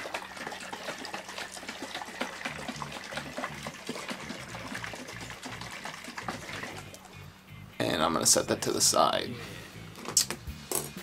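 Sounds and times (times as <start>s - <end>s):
liquid sloshing in glass jar: 0.0s - 7.1s.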